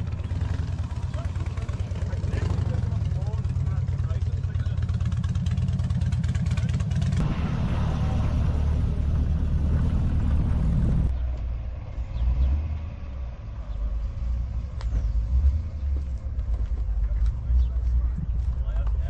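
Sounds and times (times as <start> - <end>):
car engine running: 0.0 - 11.4.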